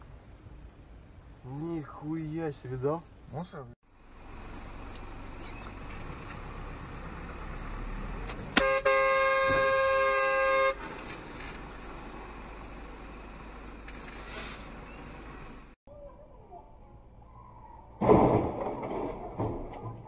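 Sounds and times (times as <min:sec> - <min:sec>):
road and engine noise: 0:00.0 - 0:18.1
vehicle horn: 0:08.6 - 0:10.8.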